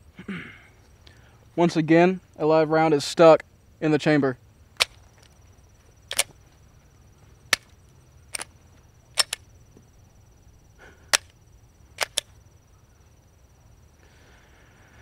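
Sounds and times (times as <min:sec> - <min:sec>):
pistol slide metallic clacks: 0:04.8 - 0:05.4, 0:06.1 - 0:06.4, 0:08.3 - 0:08.5, 0:09.2 - 0:09.5, 0:11.1 - 0:11.4, 0:12.0 - 0:12.4.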